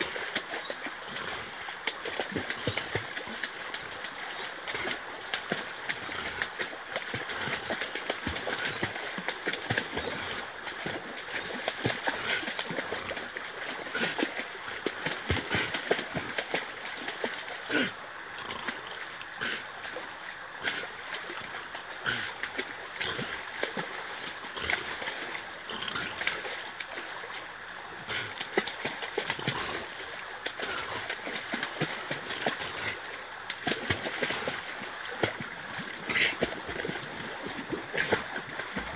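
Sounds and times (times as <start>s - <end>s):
dog splashing in water: 0.0s - 17.9s, 28.1s - 38.9s.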